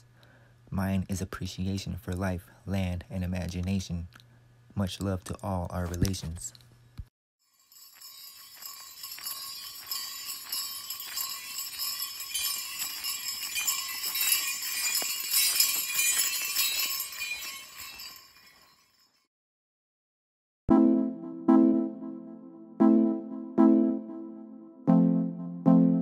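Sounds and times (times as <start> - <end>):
small bells jingling: 7.4 - 19.3.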